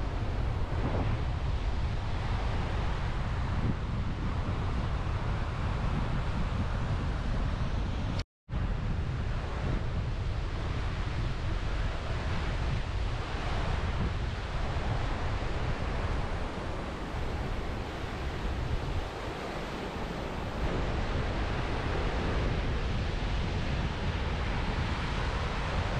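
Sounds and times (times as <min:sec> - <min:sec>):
wind rumbling on microphone: 0:00.0 - 0:25.9.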